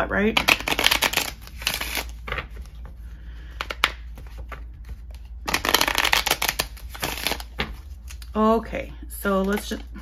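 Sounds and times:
playing cards riffle shuffle: 0.4s - 8.3s.

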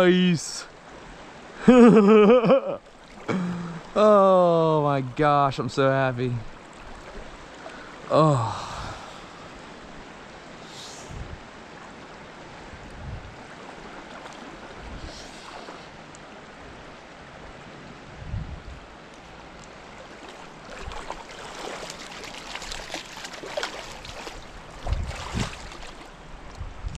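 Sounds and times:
creek water rushing: 0.0s - 26.5s
splashing and crackling: 13.6s - 16.3s, 19.1s - 26.6s.

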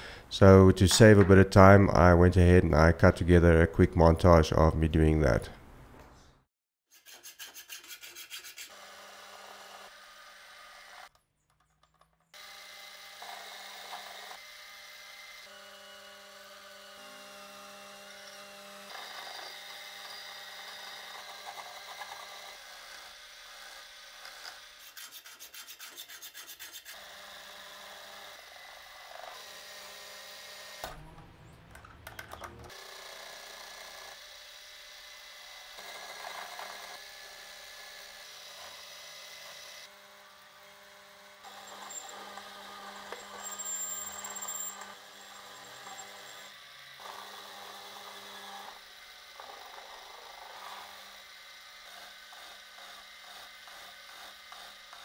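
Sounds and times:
lathe tool cutting metal: 38.0s - 48.8s
lathe motor humming: 39.9s - 47.0s.

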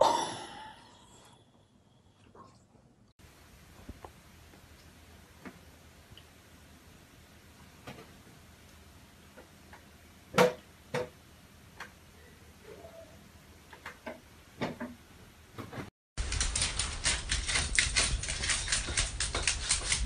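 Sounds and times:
dense clatter of rapid clicks: 16.2s - 20.0s.

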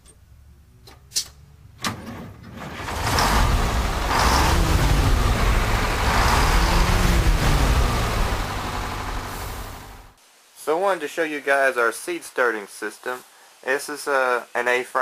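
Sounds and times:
vehicle engine rumbling: 2.5s - 10.2s.

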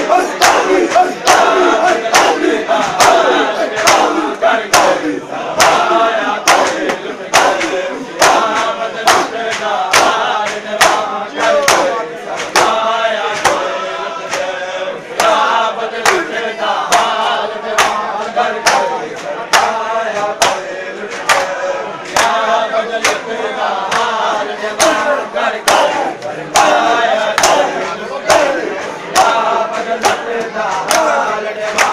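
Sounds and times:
crowd chanting: 0.0s - 31.9s
hands slapping bare chests: 0.4s - 12.8s, 13.4s - 13.7s, 18.6s - 18.9s, 19.5s - 22.4s, 23.0s - 23.2s, 23.9s - 24.2s, 25.7s - 28.6s, 30.0s - 31.9s.

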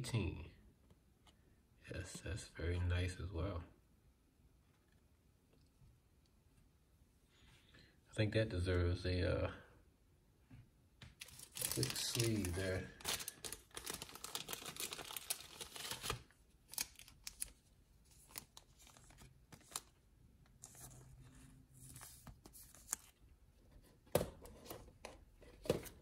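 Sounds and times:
plastic card sleeve crinkling: 11.2s - 21.2s, 21.8s - 23.2s.

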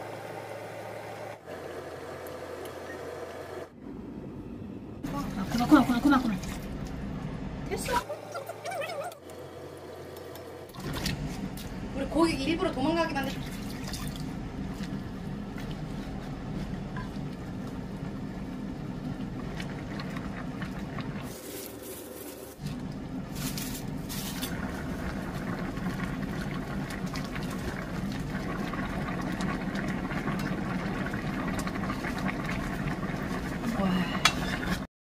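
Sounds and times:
soup boiling in pot: 13.4s - 34.9s
water pouring into pot: 24.4s - 34.8s.

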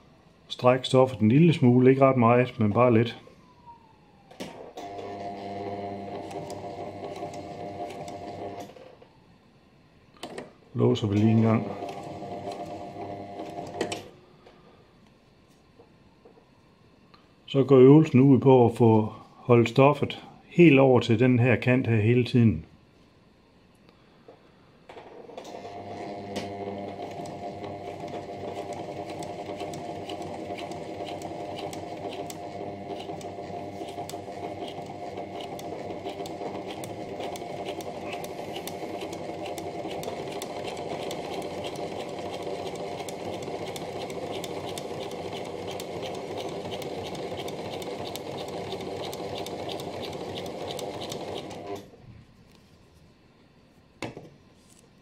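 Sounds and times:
sewing machine stitching: 4.8s - 8.8s, 11.2s - 14.1s, 25.2s - 51.9s.

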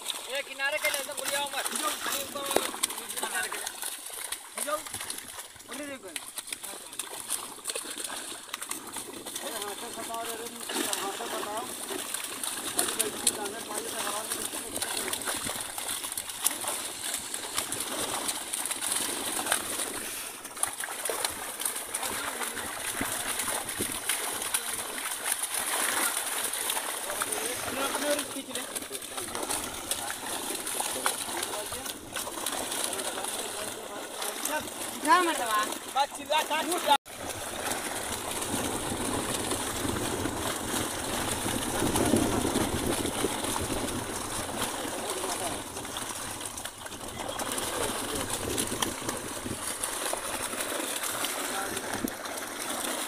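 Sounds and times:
water splashing and fish thrashing: 0.0s - 53.0s.

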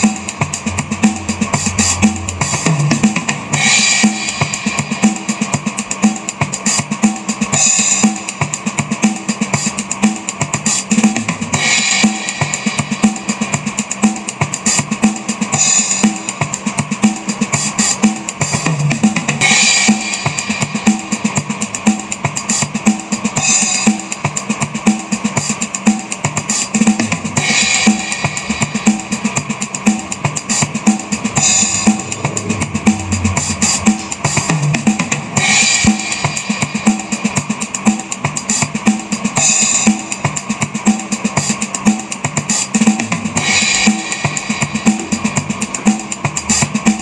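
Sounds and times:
cymbal crash: 0.0s - 5.6s, 27.4s - 37.5s
drum kit beat: 0.0s - 47.0s.

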